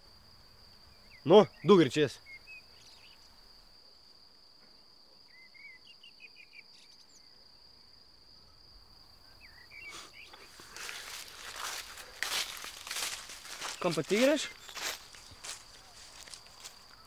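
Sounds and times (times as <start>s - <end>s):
bird chirps: 1.0s - 3.3s, 5.2s - 7.4s, 9.3s - 10.6s, 13.6s - 17.0s
insect trilling: 9.3s - 17.0s
footsteps rustling in grass: 10.4s - 17.0s.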